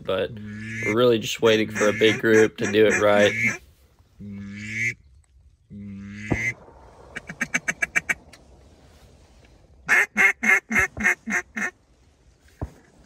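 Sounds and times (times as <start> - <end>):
duck quacking: 0.4 - 1.0, 1.6 - 3.6, 4.3 - 5.0, 9.9 - 11.8.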